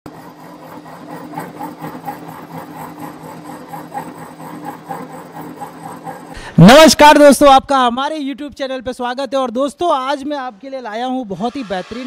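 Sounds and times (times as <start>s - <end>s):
motor hum: 0.1s - 6.9s.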